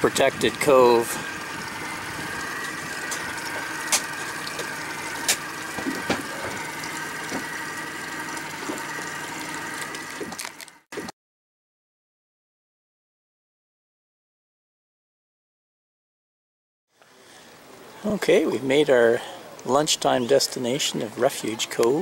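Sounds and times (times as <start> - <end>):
outboard motor running: 0.0 - 11.1.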